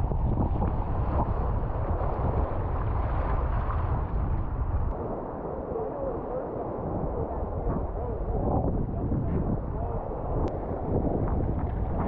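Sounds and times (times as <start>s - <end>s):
ocean water noise: 0.0s - 12.0s
wind buffeting microphone: 0.0s - 12.0s.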